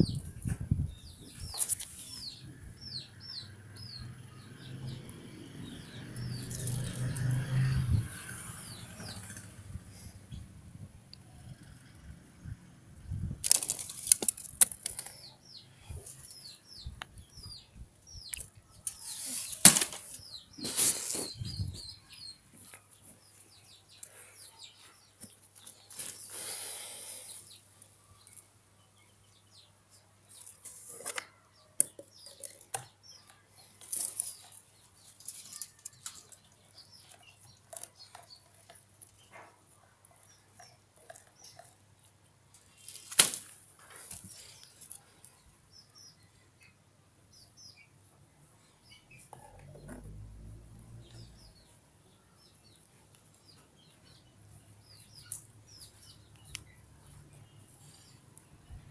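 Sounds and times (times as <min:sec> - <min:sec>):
small birds chirping: 0:00.0 - 0:58.9
rustling and knocking of wooden sticks: 0:13.4 - 0:15.2, 0:18.4 - 0:21.3, 0:30.3 - 0:39.5.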